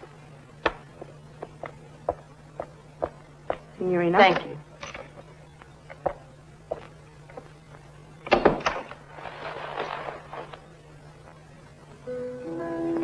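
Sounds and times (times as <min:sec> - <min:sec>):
rustling cloth: 0:09.0 - 0:10.7.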